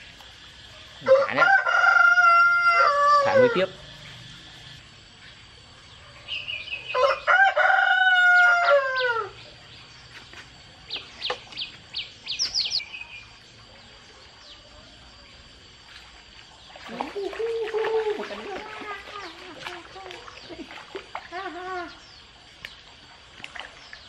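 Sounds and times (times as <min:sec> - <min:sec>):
rooster crowing: 0:01.0 - 0:03.9, 0:06.3 - 0:09.4
bird chirping: 0:03.9 - 0:07.0, 0:10.9 - 0:13.4.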